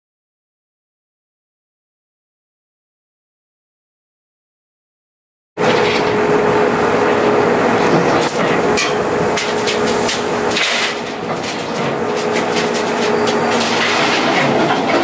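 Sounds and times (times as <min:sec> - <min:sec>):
feed mixer humming: 0:05.6 - 0:11.2
metal clanks and rattles: 0:08.2 - 0:15.0.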